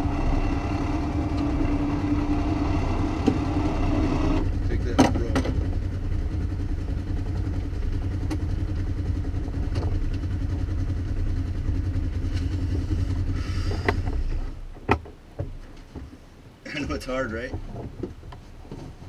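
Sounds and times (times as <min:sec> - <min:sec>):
engine idling: 0:00.0 - 0:14.8.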